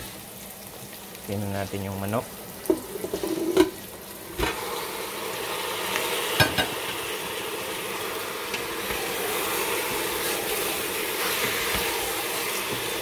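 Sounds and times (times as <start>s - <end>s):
chicken sizzling in oil: 0.0s - 13.0s
wooden spoon stirring: 8.8s - 13.0s.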